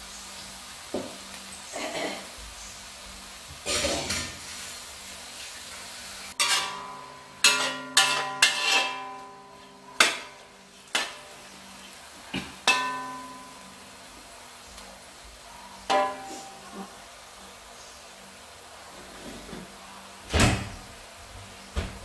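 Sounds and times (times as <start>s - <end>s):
faint sizzling: 0.0s - 22.0s
metal spatula scraping a wok: 3.7s - 4.8s, 6.3s - 11.4s.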